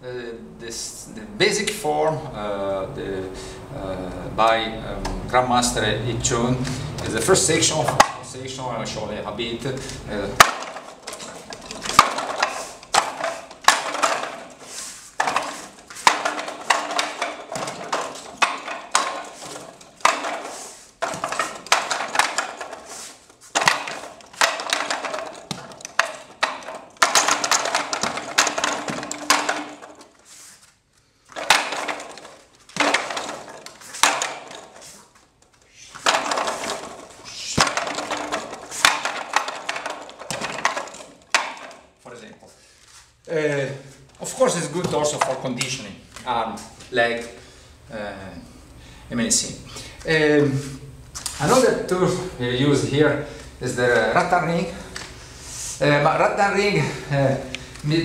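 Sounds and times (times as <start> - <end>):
wooden clacks and knocks: 6.8 - 8.4, 10.3 - 30.3, 31.3 - 42.4.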